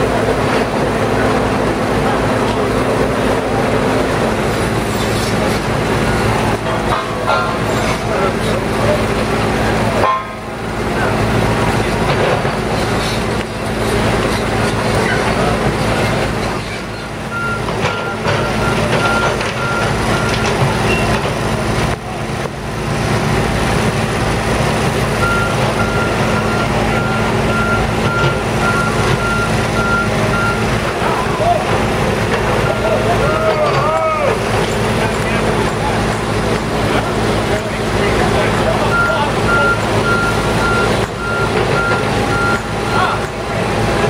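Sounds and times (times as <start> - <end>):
diesel machinery engines running: 0.0 - 44.0
back-up alarm beeping: 17.3 - 21.2, 25.2 - 30.8, 38.8 - 43.3.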